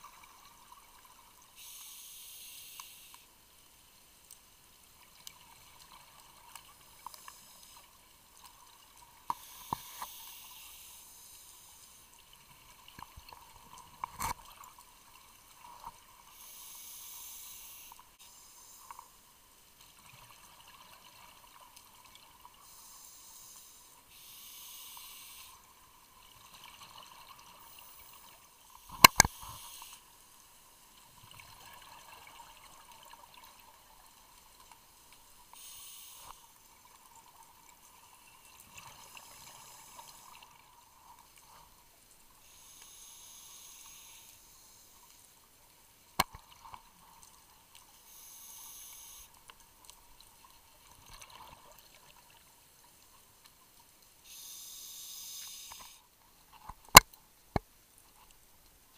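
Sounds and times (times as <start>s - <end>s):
sharp clicks: 28.9s - 29.4s.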